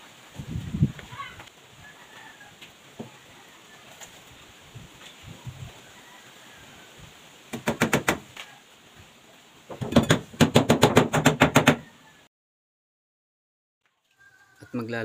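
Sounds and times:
hammer driving nails into wood: 7.5 - 8.2, 9.7 - 11.8.

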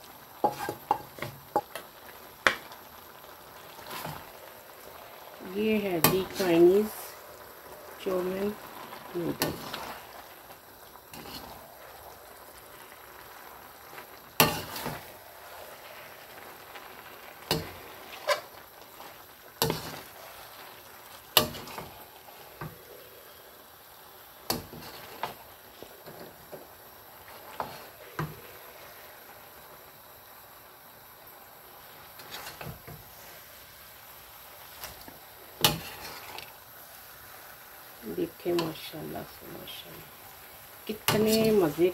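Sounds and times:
low sizzle: 0.0 - 41.9
spatula knocking and scraping wok: 0.4 - 2.6, 14.4 - 15.2, 17.4 - 18.5, 19.6 - 20.2, 21.4 - 22.0, 24.5 - 25.4, 34.8 - 36.5, 40.9 - 41.9.

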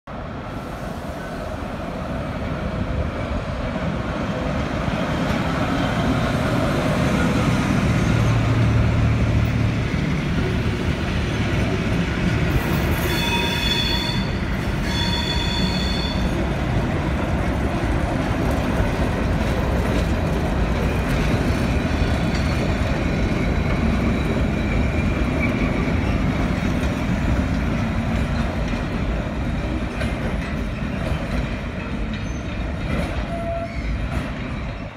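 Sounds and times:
train wheels rumbling on rails: 0.4 - 34.9
wheel squeal: 12.9 - 16.3, 33.2 - 34.0
high-pitched whistle blasts: 13.1 - 16.3.

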